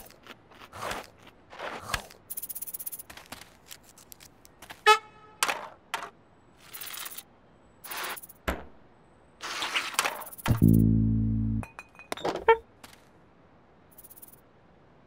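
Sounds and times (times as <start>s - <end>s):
loud pitched blip: 10.5s - 11.6s.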